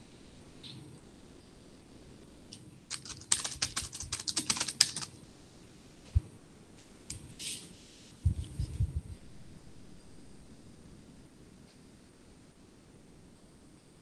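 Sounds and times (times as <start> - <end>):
keyboard typing: 2.9 - 5.1.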